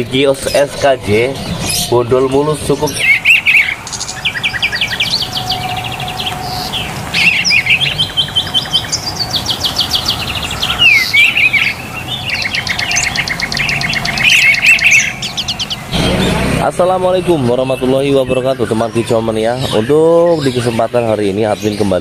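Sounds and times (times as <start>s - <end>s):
songbird trills and whistles: 1.4s - 16.0s.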